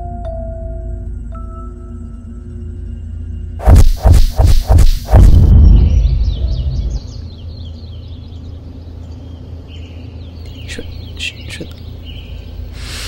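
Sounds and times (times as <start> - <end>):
steady low rumble: 2.1 - 12.8
small birds chirping: 4.0 - 13.0.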